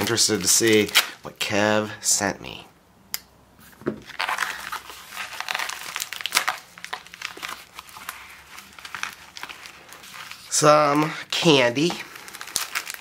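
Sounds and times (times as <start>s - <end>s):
plastic mailer crinkling: 0.0s - 1.2s, 4.0s - 13.0s.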